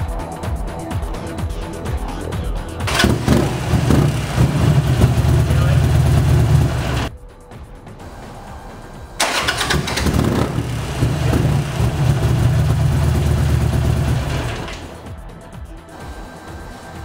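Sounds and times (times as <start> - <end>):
electric starter: 2.9 - 7.1, 9.2 - 15.0
motorcycle engine running: 2.9 - 7.1, 9.2 - 15.0.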